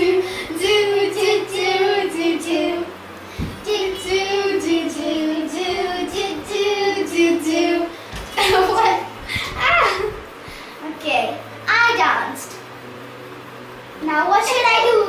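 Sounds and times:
girls singing unaccompanied: 0:00.0 - 0:10.1
soft thump: 0:03.4 - 0:03.6.

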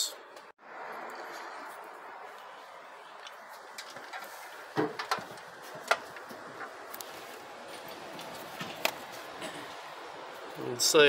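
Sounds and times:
steady low hiss: 0:02.4 - 0:11.0
engine parts clicking and knocking: 0:03.2 - 0:10.9.

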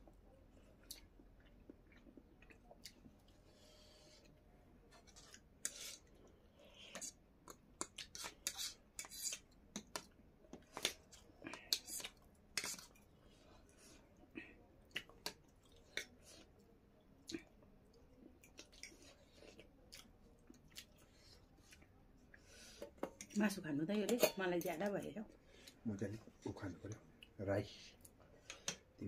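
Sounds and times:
chewing: 0:00.5 - 0:23.4
cutlery scraping on plates: 0:24.0 - 0:24.8.

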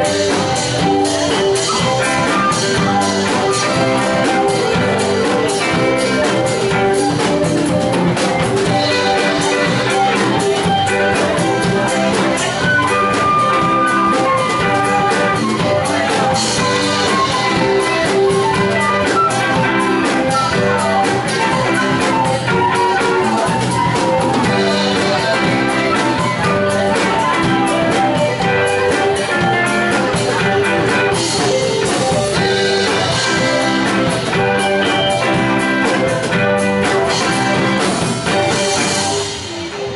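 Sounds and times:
bass guitar: 0:00.0 - 0:39.9
drum kit: 0:00.0 - 0:39.9
electric guitar: 0:00.0 - 0:39.9.

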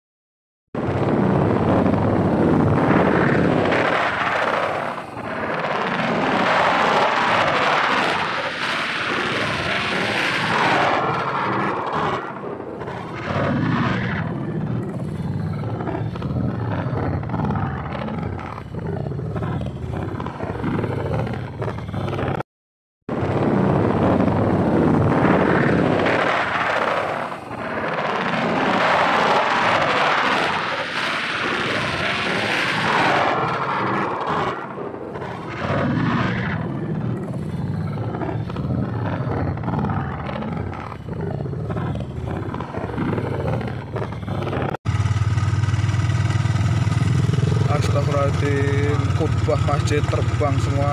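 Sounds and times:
strong wind gusting: 0:00.8 - 0:22.4, 0:23.1 - 0:50.9.

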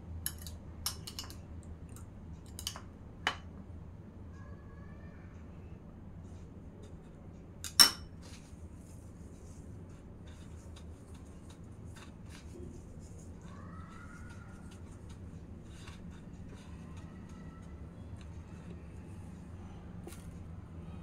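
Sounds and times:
clink against a plate: 0:07.6 - 0:08.1.

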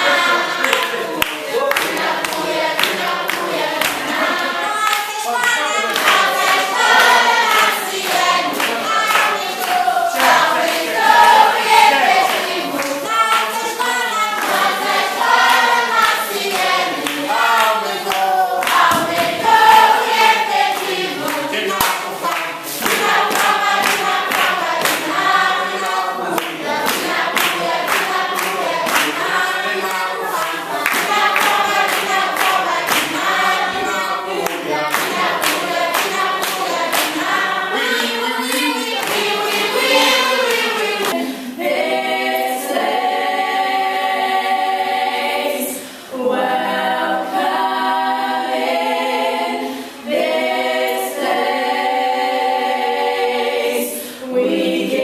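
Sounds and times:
children singing: 0:00.0 - 0:55.0
children clapping hands: 0:00.6 - 0:41.2.

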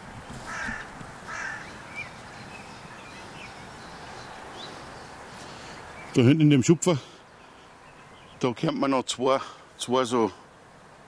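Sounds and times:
faint outdoor background: 0:00.0 - 0:11.0
crow cawing: 0:00.5 - 0:01.9.

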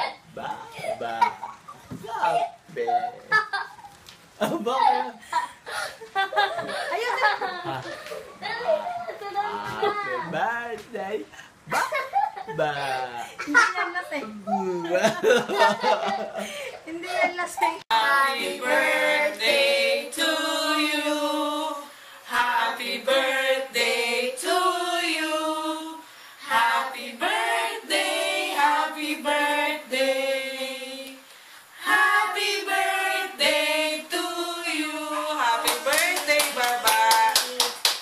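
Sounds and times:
group singing unaccompanied: 0:17.9 - 0:37.0.

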